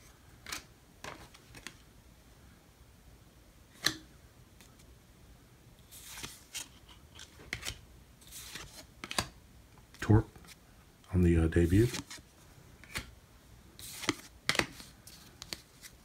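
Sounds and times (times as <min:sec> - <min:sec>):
cards sliding rustles: 0:00.4 - 0:01.8, 0:05.8 - 0:10.6, 0:11.6 - 0:13.2, 0:13.8 - 0:16.0
cards snapping: 0:03.8 - 0:04.0, 0:06.0 - 0:07.8, 0:08.4 - 0:09.4, 0:12.8 - 0:13.1, 0:13.8 - 0:16.0.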